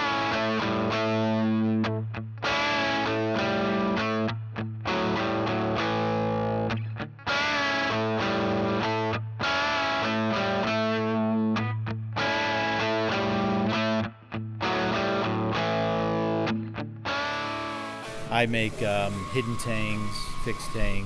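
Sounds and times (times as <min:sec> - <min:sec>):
distorted electric guitar chords: 0:00.0 - 0:20.8.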